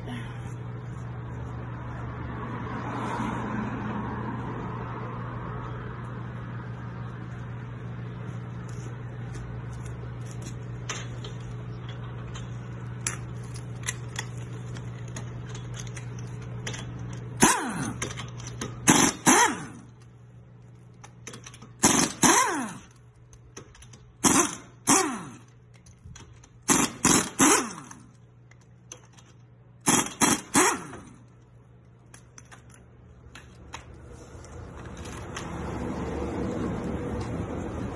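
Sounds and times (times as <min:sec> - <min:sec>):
pneumatic impact wrench hammering: 0:16.6 - 0:20.0, 0:21.0 - 0:31.4.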